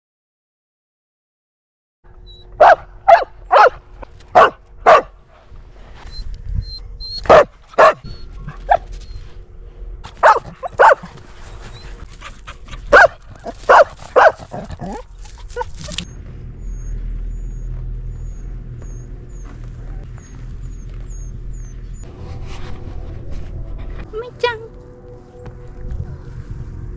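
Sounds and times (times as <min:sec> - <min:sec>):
steady low rumble: 0:02.1 - 0:26.9
dog barking: 0:02.6 - 0:05.2, 0:07.2 - 0:08.9, 0:10.2 - 0:11.2, 0:12.9 - 0:16.0.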